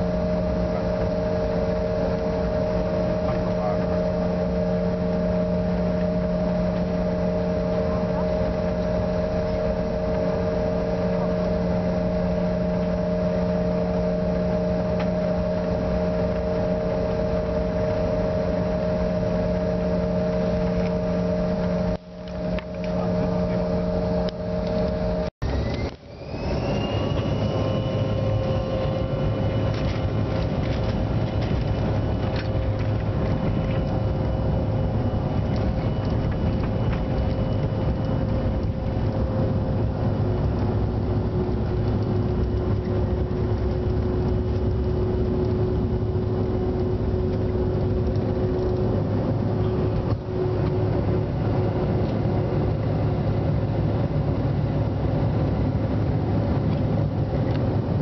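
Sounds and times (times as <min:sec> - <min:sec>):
jet engines whining: 0:00.0 - 0:58.0
low rumble: 0:00.0 - 0:58.0
engines spooling up: 0:07.8 - 0:39.4.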